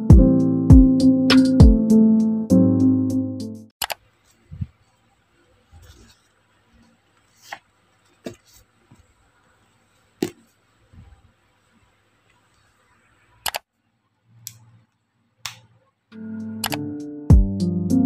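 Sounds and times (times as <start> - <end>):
isolated clicks: 3.8 - 4.0, 13.4 - 13.7, 16.6 - 16.9
paper rustling: 5.7 - 9.1.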